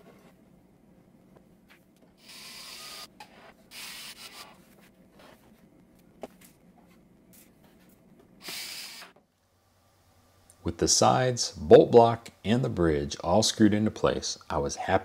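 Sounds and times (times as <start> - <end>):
cordless drill driving screws: 2.2 - 3.1, 8.4 - 9.1.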